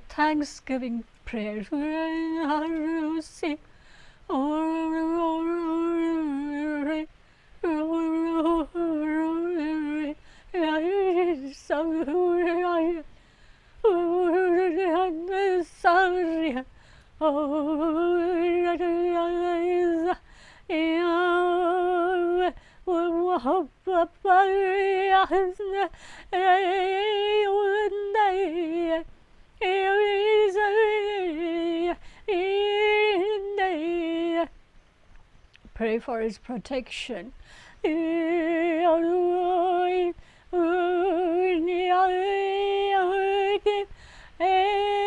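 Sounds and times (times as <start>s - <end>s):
breaths: 3.6s - 4.3s, 7.1s - 7.6s, 10.2s - 10.6s, 13.1s - 13.8s, 16.7s - 17.2s, 20.2s - 20.7s, 22.6s - 22.9s, 25.9s - 26.4s, 32.0s - 32.3s, 37.4s - 37.8s, 40.2s - 40.5s, 43.9s - 44.4s.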